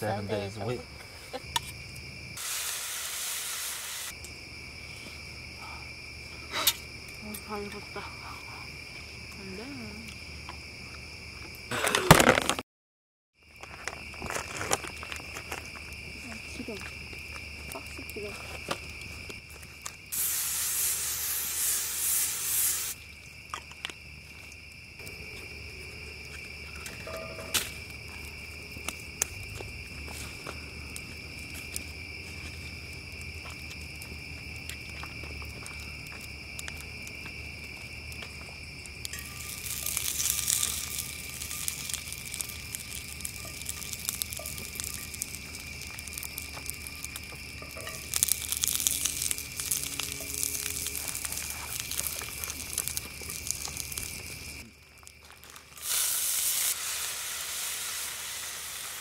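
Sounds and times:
crickets chirping: 0.0s - 12.6s, 13.4s - 59.0s
campfire crackling and popping: 0.2s - 4.7s, 13.5s - 59.0s
meat patties sizzling: 2.4s - 4.2s, 20.1s - 23.0s, 39.2s - 59.0s
cooking spray hissing: 2.4s - 4.3s, 20.0s - 23.2s, 39.1s - 54.7s, 55.5s - 59.0s.

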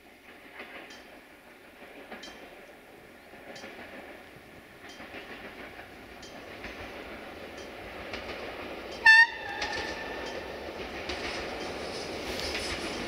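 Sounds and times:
railcar running noise: 0.0s - 13.0s
wheels clicking over rail joints: 0.1s - 13.0s
train horn blast: 9.0s - 10.2s.

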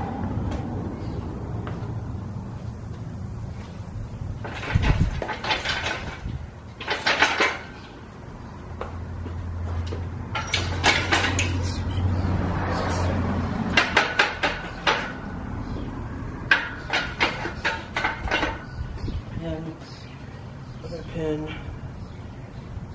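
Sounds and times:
metal parts and tools clanking: 4.4s - 7.9s, 10.3s - 12.0s, 13.7s - 15.2s, 16.5s - 18.8s.

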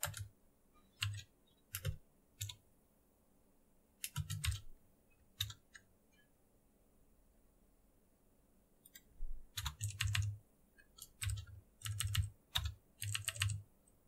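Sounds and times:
typing on a computer keyboard: 0.0s - 0.3s, 0.9s - 2.6s, 4.0s - 4.7s, 5.4s - 5.9s, 8.9s - 13.6s.

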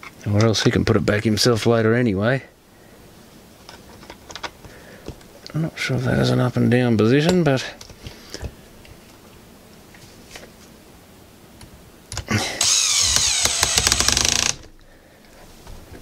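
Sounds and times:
electric screwdriver running: 12.6s - 14.7s.

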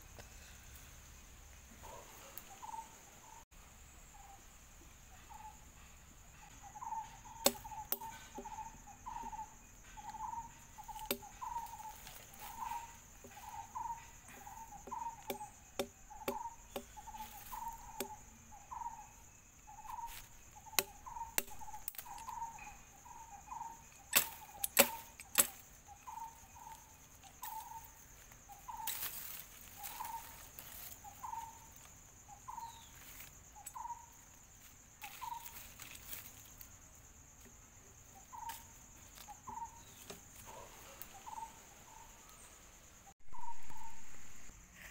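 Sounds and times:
insect drone: 0.0s - 44.9s
twigs clicking and snapping: 10.8s - 13.6s, 20.1s - 22.7s, 24.1s - 25.6s.

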